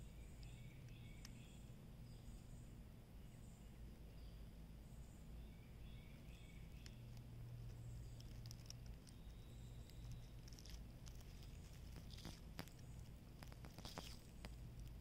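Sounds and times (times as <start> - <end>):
faint low hum: 0.0 - 15.0
turtle chewing melon: 6.7 - 15.0.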